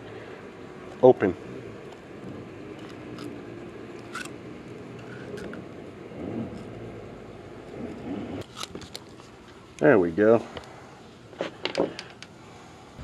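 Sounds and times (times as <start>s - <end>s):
low background hum: 0.0s - 13.0s
metallic pliers clicks and scrapes: 4.0s - 4.3s.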